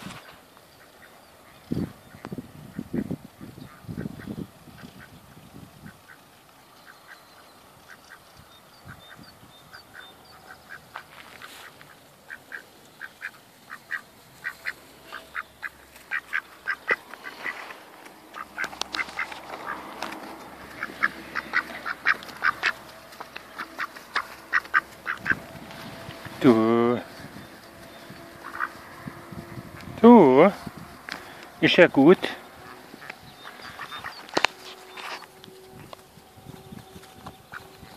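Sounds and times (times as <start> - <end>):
duck calling in short notes: 9.9 - 17.7, 20.7 - 22.8.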